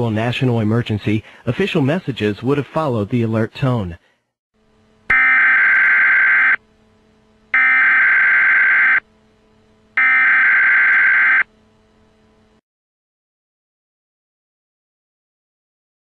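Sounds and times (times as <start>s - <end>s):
faint low hum: 0.0s - 12.6s.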